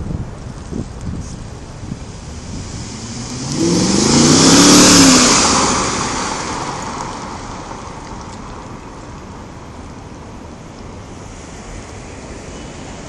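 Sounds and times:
car engine driving past: 2.0s - 8.8s.

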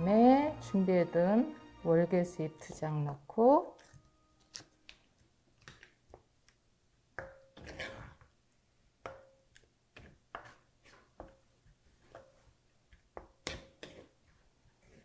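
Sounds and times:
wooden spoon stirring sauce in pot: 7.2s - 8.4s, 9.1s - 15.0s.

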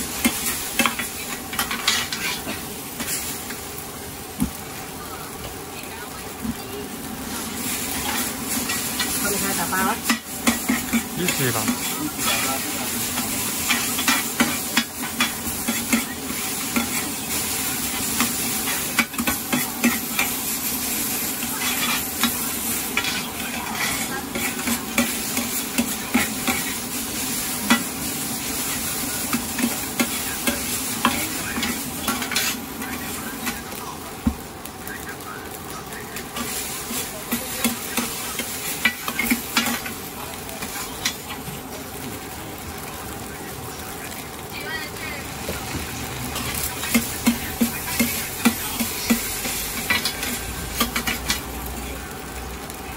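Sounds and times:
food sizzling in a wok: 0.0s - 52.9s
metal spatula scraping a pan: 0.2s - 3.2s, 21.6s - 26.9s.

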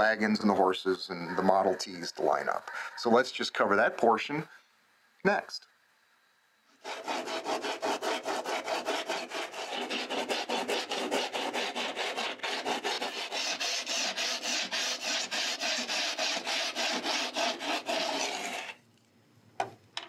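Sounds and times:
rasp scraping a surface: 6.8s - 18.8s.

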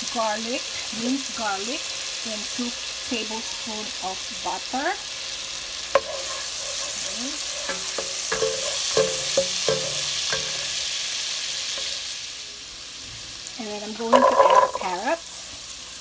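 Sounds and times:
garlic sizzling in butter: 0.0s - 16.0s
utensil scraping a pan: 5.9s - 10.9s, 14.1s - 15.1s.

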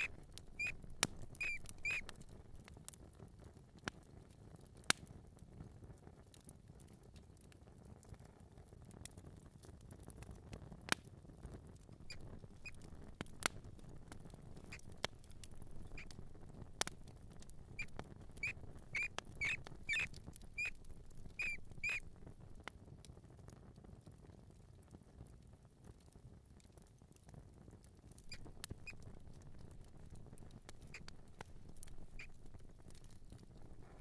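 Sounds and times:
mouse squeaks: 0.0s - 2.3s, 12.1s - 12.9s, 14.6s - 16.2s, 16.8s - 22.1s, 28.2s - 29.2s, 30.8s - 33.4s
light pattering: 0.0s - 2.8s, 11.9s - 22.7s, 28.1s - 34.0s.

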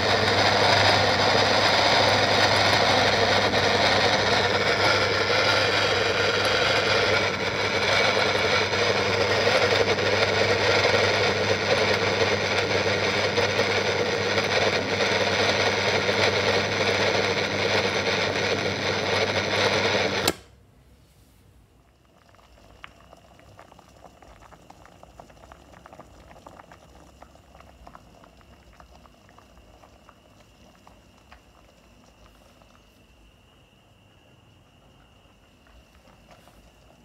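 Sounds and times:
kitchen appliance motor humming: 0.0s - 20.5s
water crackling in pot: 21.8s - 33.0s
faint high whine: 26.8s - 37.0s.

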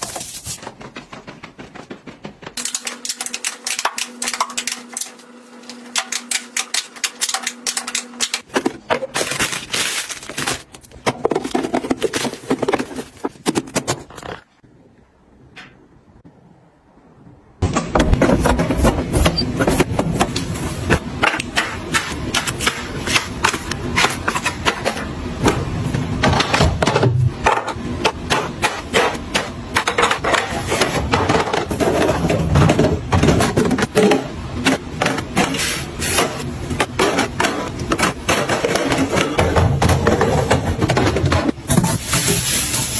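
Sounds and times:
cans and bottles clattering: 6.0s - 14.4s.

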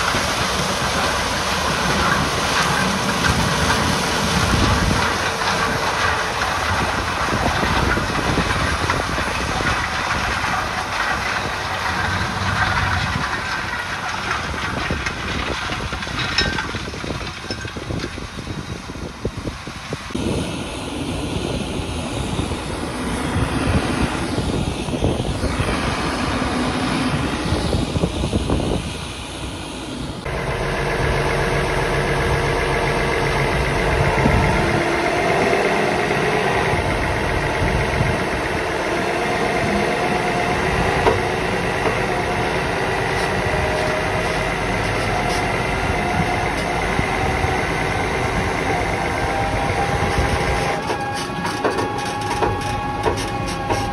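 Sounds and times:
combine harvester running: 0.0s - 53.9s
heavy machinery running: 0.0s - 53.9s
diesel engine idling: 20.2s - 53.9s.

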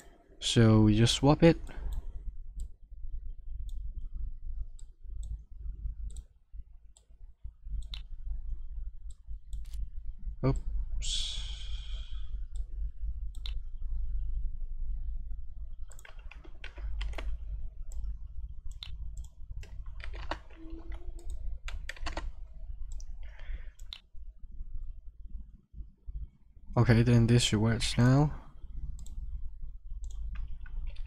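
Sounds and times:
steady low hum: 0.0s - 31.0s
mouse clicks: 7.8s - 8.1s, 13.3s - 13.6s, 18.7s - 22.0s, 29.0s - 29.2s
keyboard keys typing: 15.8s - 18.1s, 18.7s - 24.0s.

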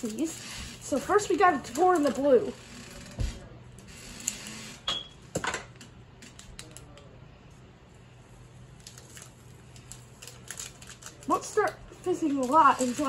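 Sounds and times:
foil packet crinkling: 8.8s - 13.0s
scissors snipping foil packet: 8.8s - 13.0s.

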